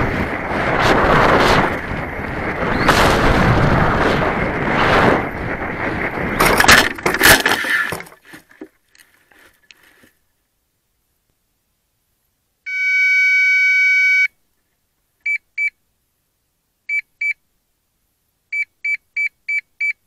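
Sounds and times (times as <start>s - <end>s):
wind rushing over microphone: 0.0s - 8.0s
rocket hitting ground in grass: 0.7s - 8.2s.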